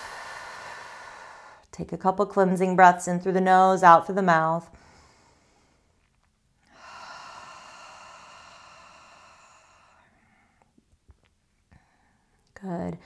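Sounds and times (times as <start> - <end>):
woman exhaling: 0.0 - 1.6, 6.7 - 10.2.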